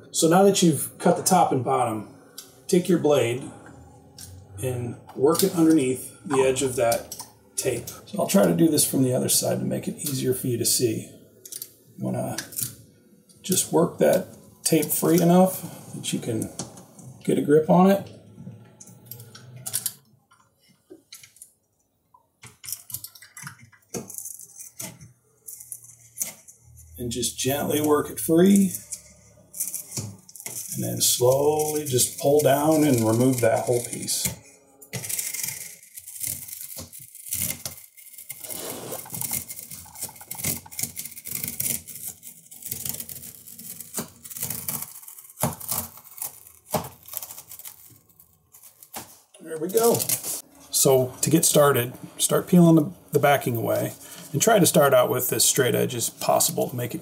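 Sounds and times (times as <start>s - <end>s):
tape strip rustling: 22.4s - 57.0s
adhesive tape peeling: 27.6s - 50.4s.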